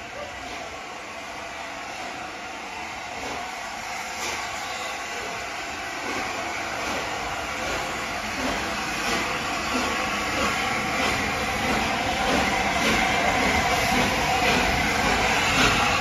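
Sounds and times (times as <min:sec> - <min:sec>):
steam hiss: 0:00.0 - 0:16.0
steam locomotive exhaust beats: 0:00.0 - 0:16.0.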